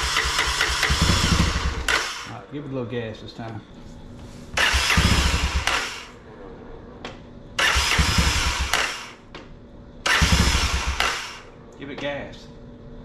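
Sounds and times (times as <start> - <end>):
engine cranking without starting: 0.0 - 2.4, 4.6 - 6.2, 7.6 - 9.2, 10.0 - 11.5.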